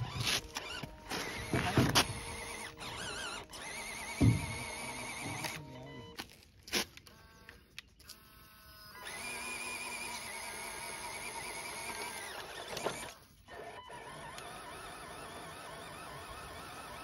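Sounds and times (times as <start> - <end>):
clicks and short whirs: 0.0 - 17.0
small electric motor whining: 0.0 - 17.0.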